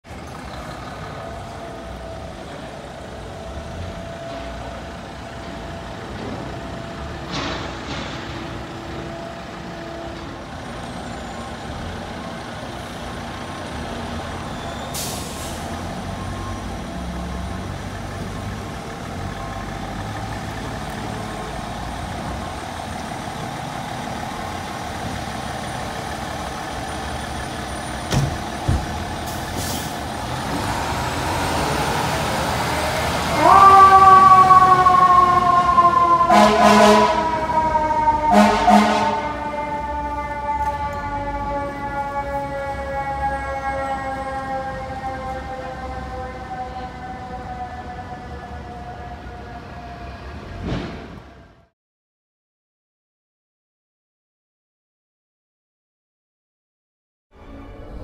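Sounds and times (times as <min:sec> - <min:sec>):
fire engine diesel engine running: 0:00.0 - 0:50.0
air brakes hissing: 0:14.4 - 0:16.2, 0:29.2 - 0:30.2.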